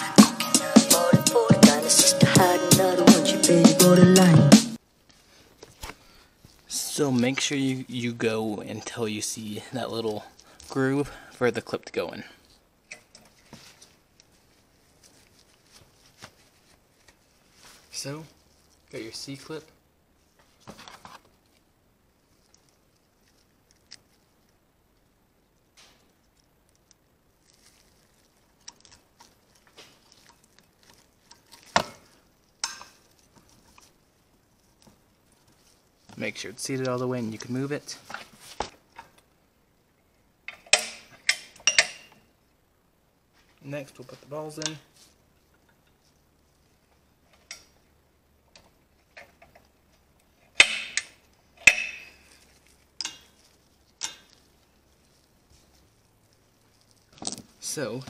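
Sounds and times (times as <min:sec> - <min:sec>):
metal-on-metal clicks: 0:40.5 - 0:42.2, 0:50.5 - 0:52.2.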